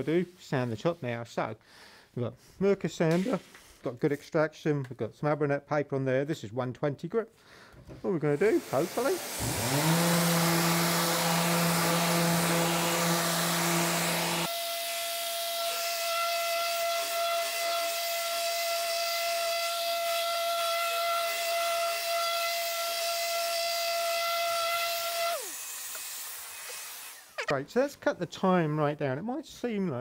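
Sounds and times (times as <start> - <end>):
dust extractor air hiss: 3.1 - 3.8, 8.2 - 15.9, 24.9 - 27.4
orbital sander whining: 8.4 - 27.5.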